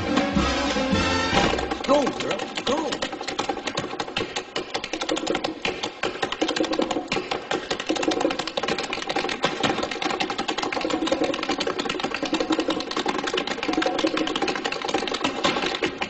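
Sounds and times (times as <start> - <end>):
big band music: 0.0 - 2.2
tap dance taps: 0.1 - 16.0.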